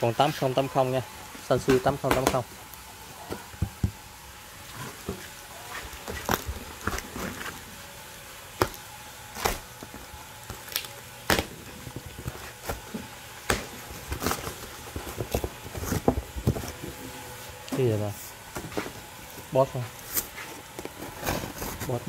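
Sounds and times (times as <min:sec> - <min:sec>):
cardboard box scraping and knocking: 0:13.9 - 0:17.0, 0:20.4 - 0:22.0.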